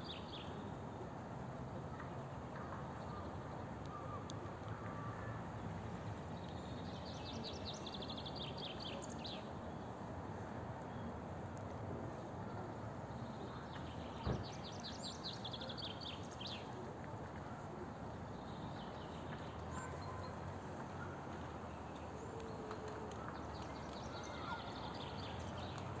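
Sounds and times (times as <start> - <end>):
songbird singing: 2.5 - 9.9, 13.0 - 16.8, 17.7 - 26.0.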